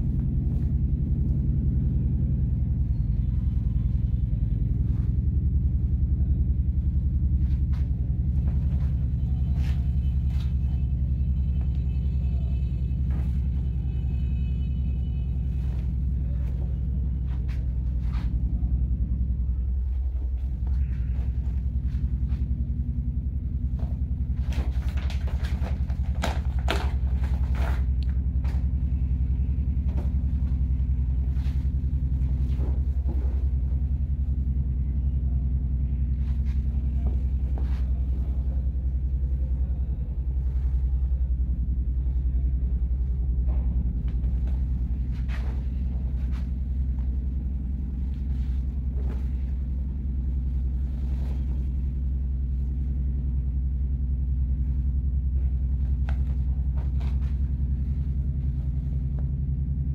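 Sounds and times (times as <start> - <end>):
steady low hum: 0.0 - 59.9
cloth rustling: 44.1 - 53.0, 55.4 - 59.4.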